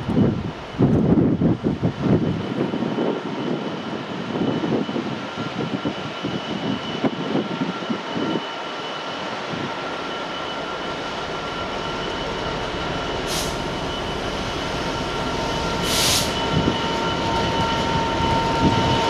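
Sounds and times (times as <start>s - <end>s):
wind buffeting microphone: 0.0s - 8.5s, 14.3s - 19.0s
diesel locomotive engine drone: 0.0s - 19.0s.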